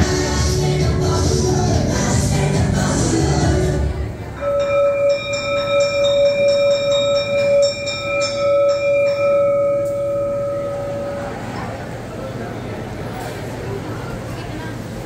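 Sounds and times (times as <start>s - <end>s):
song playing: 0.0s - 5.4s
school bell ringing: 4.4s - 12.0s.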